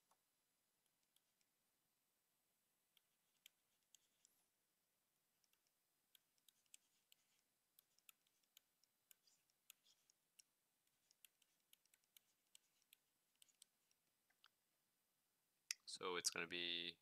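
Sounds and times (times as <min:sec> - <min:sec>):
stylus tapping on tablet screen: 0:02.9 - 0:04.4, 0:05.4 - 0:14.6.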